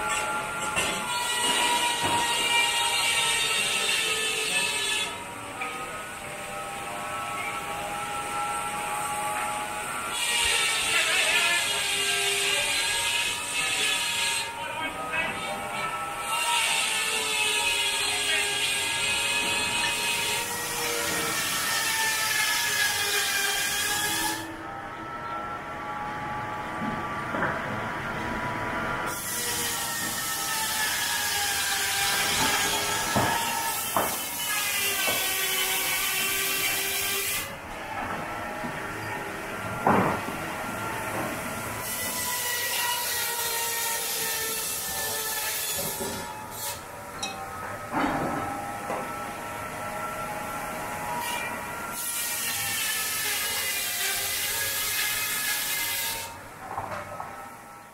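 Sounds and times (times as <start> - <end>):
circular saw cutting timber: 0.0 - 57.9
low machinery running: 23.9 - 30.3.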